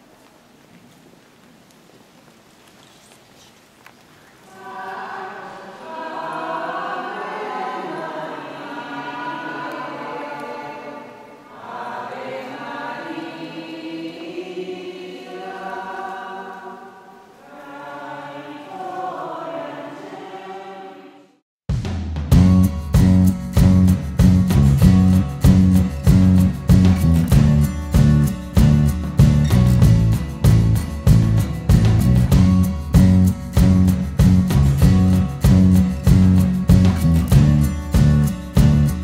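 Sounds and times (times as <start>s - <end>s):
group singing a hymn: 4.5s - 21.4s.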